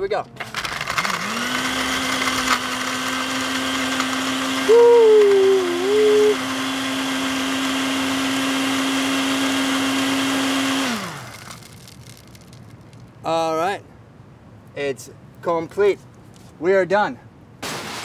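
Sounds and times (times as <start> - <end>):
blender motor running: 0.4 - 12.0
man's wavering drawn-out vocal: 4.7 - 6.4.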